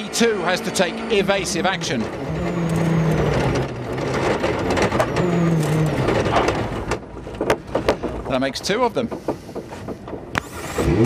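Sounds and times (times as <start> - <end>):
rally car engine running: 0.0 - 11.0
rough crunching: 1.1 - 11.0
sharp knocks: 2.1 - 10.6.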